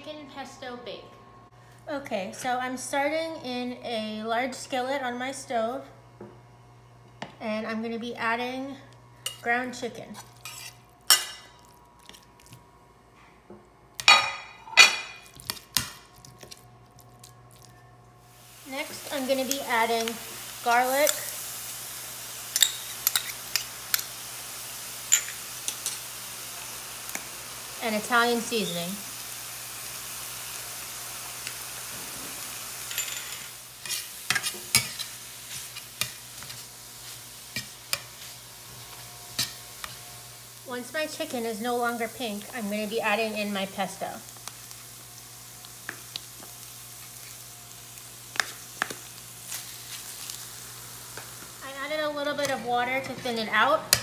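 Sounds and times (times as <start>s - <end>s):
metal spatula scraping pan: 10.1s - 11.3s
metal spatula clanking on skillet: 10.4s - 11.5s, 22.5s - 24.1s
meat sizzling in skillet: 18.2s - 54.0s.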